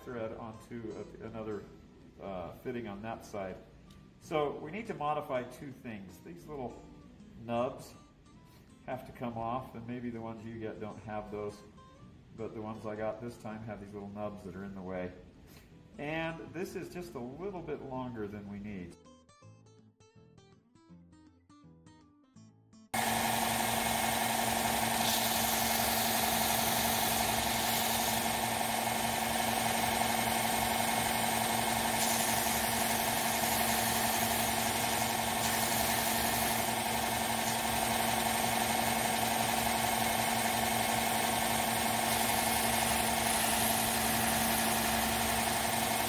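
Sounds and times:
belt sander running: 0:23.0 - 0:46.0.

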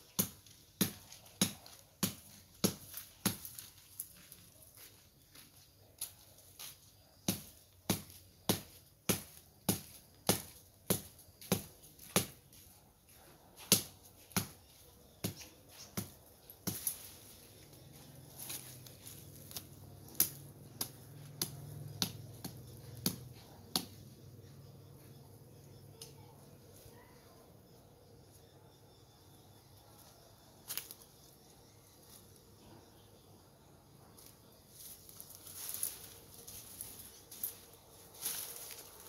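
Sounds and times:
blade chopping shrub stems: 0:00.1 - 0:04.3, 0:06.0 - 0:12.5, 0:13.6 - 0:24.0, 0:34.2 - 0:39.0.

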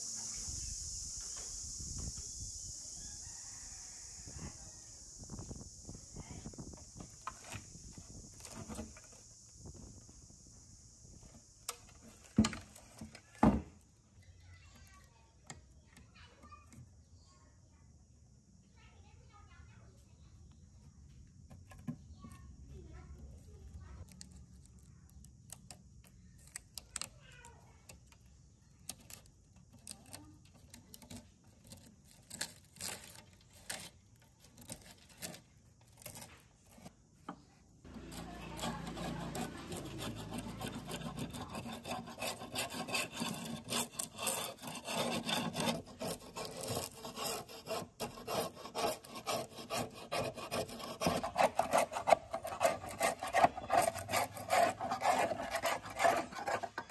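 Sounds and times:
scraper blade scraping paint: 0:07.0 - 0:09.3, 0:28.8 - 0:37.0, 0:37.9 - 0:56.9
paint peeling off metal: 0:37.9 - 0:56.9.

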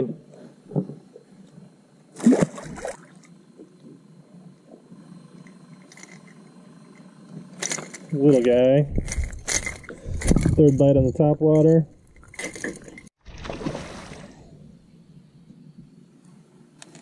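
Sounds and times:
fish splashing water: 0:13.2 - 0:14.6.

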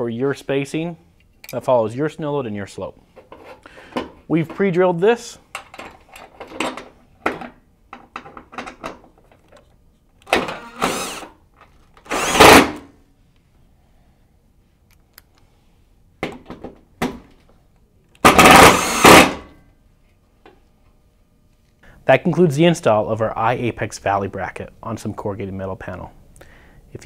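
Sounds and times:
impact driver driving screws: 0:10.2 - 0:11.3, 0:12.0 - 0:12.8, 0:18.2 - 0:19.4.

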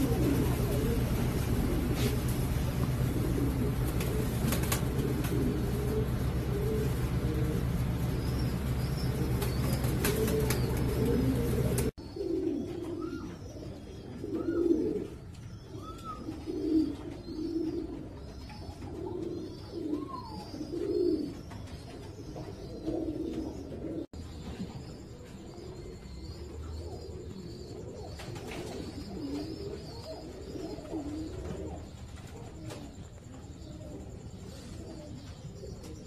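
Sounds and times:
steady hum and hiss: 0:00.0 - 0:11.9
pigeons cooing: 0:00.0 - 0:36.0.

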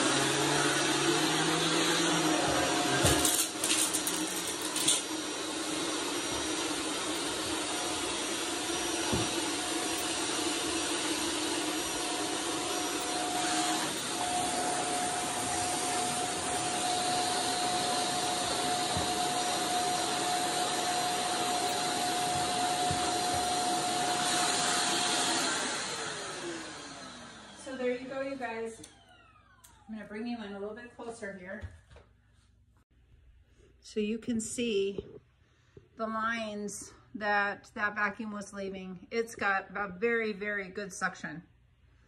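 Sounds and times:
vacuum cleaner running: 0:00.0 - 0:31.1.

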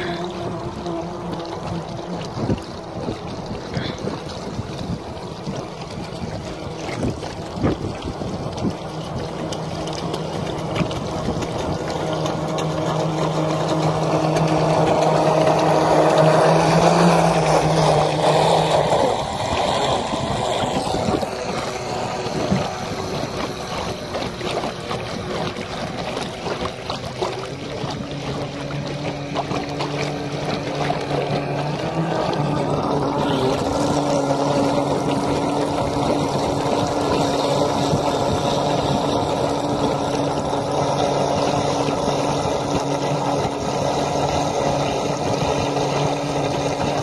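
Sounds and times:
small motor humming: 0:00.0 - 0:47.0
water rushing and splashing: 0:00.0 - 0:47.0
wind: 0:00.0 - 0:47.0.

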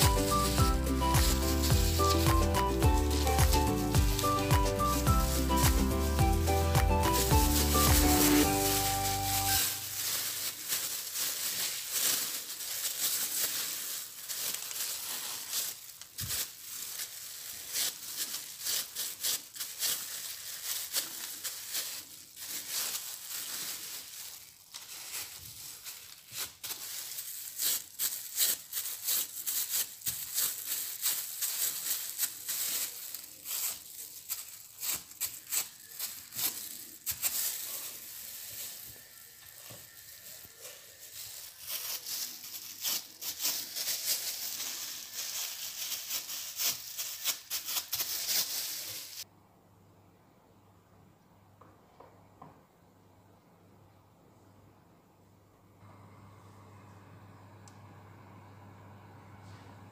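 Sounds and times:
baking paper rustling: 0:00.0 - 0:49.3
plastic gloves crinkling: 0:00.0 - 0:49.3.

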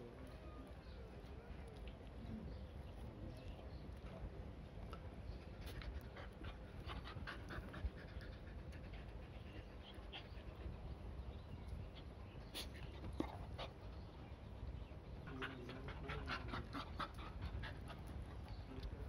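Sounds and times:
dog panting: 0:05.2 - 0:19.0.

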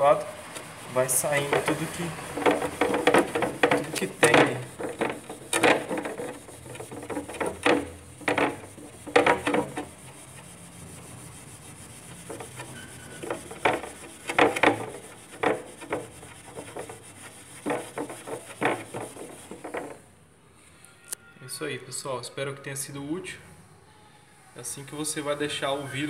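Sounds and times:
steel wool scrubbing glass: 0:00.0 - 0:20.0.

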